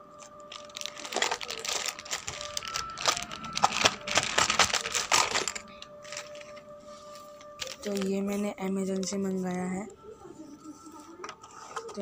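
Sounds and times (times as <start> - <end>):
plastic mailer bag crinkling: 0.3 - 6.6, 7.5 - 8.3.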